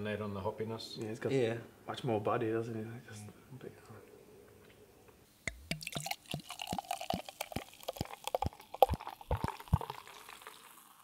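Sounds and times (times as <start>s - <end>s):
liquid glugging and plopping: 5.5s - 11.0s.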